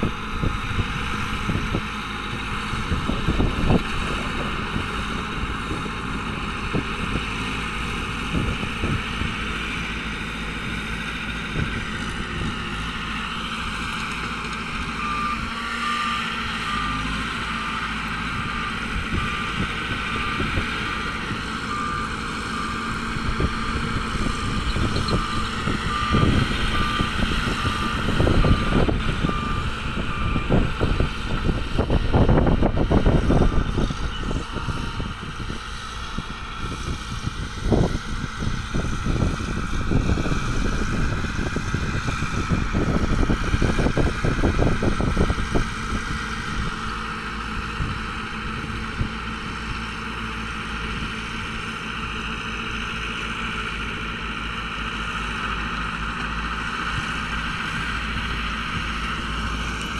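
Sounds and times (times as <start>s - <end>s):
bulldozer diesel engine running: 0.0s - 59.9s
reversing alarm beeping: 11.8s - 35.5s.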